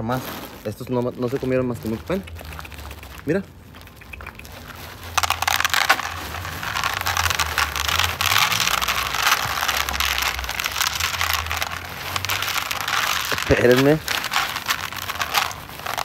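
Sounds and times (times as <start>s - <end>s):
plastic bag crinkling: 0.0s - 16.0s
kibble rattling onto a tray: 5.2s - 16.0s.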